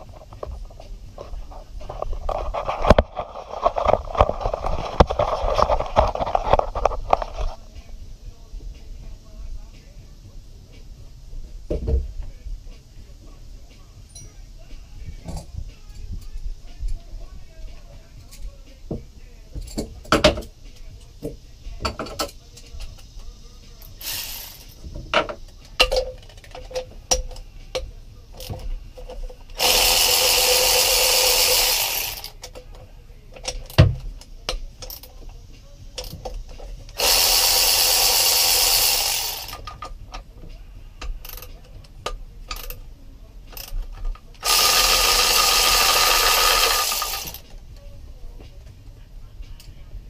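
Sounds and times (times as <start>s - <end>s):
electric ratchet running: 23.8s - 24.8s, 29.5s - 32.5s, 36.9s - 39.8s, 44.4s - 47.4s
metal tool clicks and knocks: 25.0s - 29.4s.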